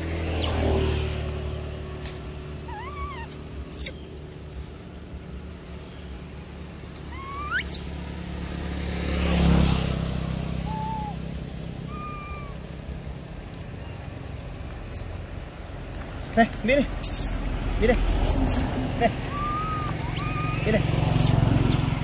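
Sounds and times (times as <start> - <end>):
macaque coo calls: 2.6 - 4.0, 7.1 - 8.0, 10.6 - 12.8, 16.9 - 17.4, 18.2 - 22.0.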